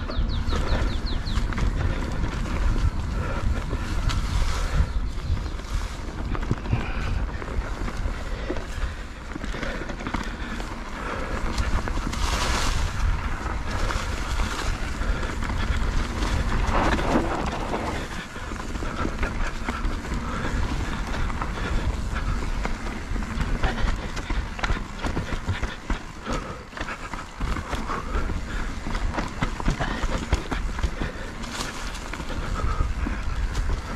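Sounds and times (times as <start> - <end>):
bike clicks and rattles: 0.0 - 33.9
wind buffeting microphone: 0.0 - 33.9.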